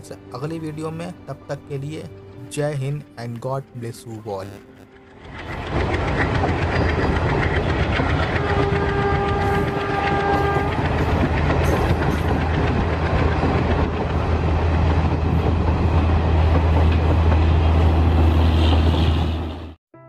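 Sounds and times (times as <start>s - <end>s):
train coaches rumbling past: 3.0s - 19.8s
rail clatter: 3.3s - 19.8s
multi-tone train horn: 8.1s - 12.0s.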